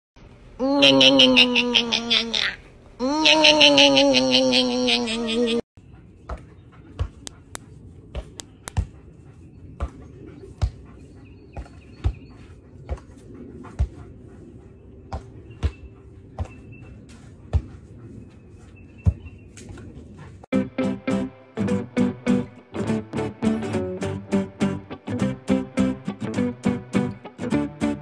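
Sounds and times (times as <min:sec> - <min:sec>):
birds chirping faintly: 0:05.8 - 0:13.4
ball thumping: 0:06.3 - 0:09.0.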